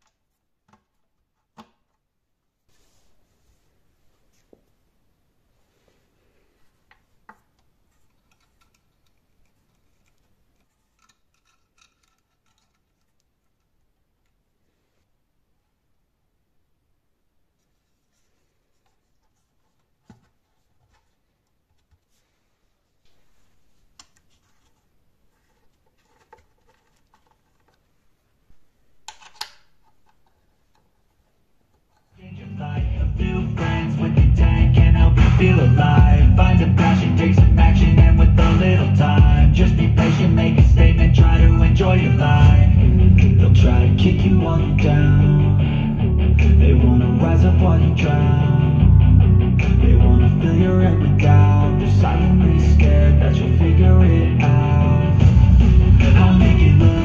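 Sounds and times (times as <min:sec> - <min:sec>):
faint clicks and scrapes: 0:05.9 - 0:15.1, 0:17.6 - 0:32.3
alligator clips clicking: 0:08.0 - 0:14.4
rock music with guitar: 0:32.9 - 0:50.4, 0:51.0 - 0:57.0.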